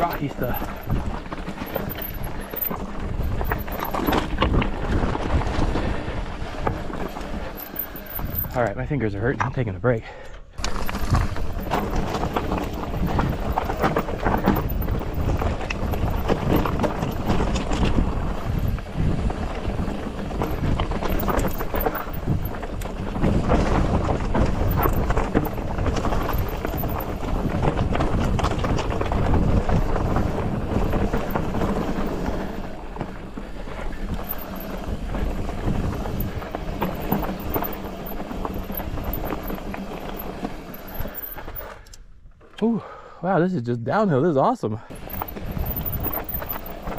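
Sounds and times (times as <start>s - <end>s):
bike knocks and rattles: 0.0s - 8.6s, 10.6s - 41.6s, 44.9s - 46.9s
wind buffeting microphone: 0.0s - 8.6s, 10.6s - 41.6s, 44.9s - 46.9s
tyres crunching over gravel: 0.0s - 8.9s, 10.6s - 41.7s.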